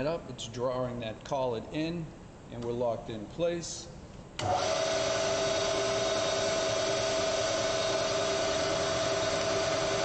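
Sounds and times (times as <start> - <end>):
milling machine motor humming: 4.4 - 10.0.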